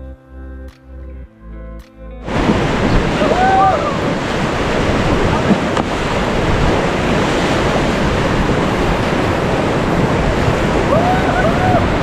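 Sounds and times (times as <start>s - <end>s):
river whitewater rushing: 2.2s - 12.0s
wind buffeting microphone: 2.2s - 12.0s
person crying out: 3.2s - 4.0s, 10.9s - 12.0s.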